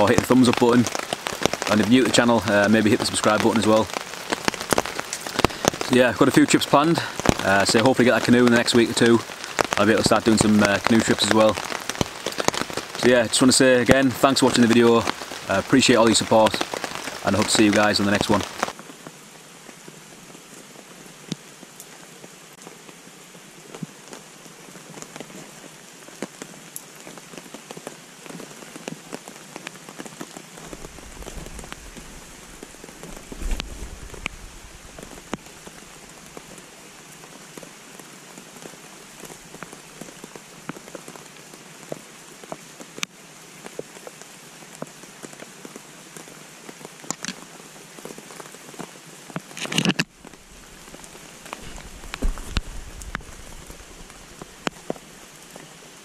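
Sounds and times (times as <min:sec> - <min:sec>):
rain falling through trees: 0:00.0 - 0:56.0
sharp ticks of raindrops: 0:00.0 - 0:56.0
short low rumble: 0:30.8 - 0:35.2.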